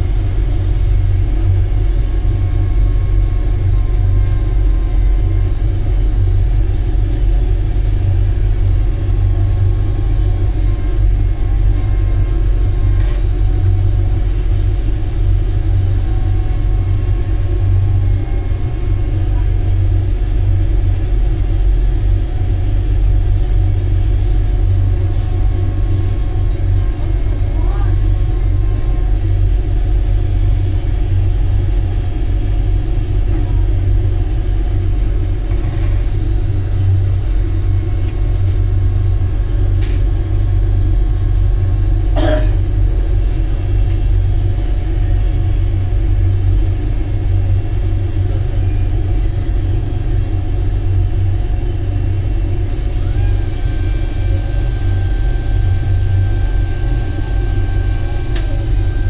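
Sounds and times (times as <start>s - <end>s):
low rumble of machinery: 0.0s - 59.0s
faint high whine: 52.6s - 59.0s.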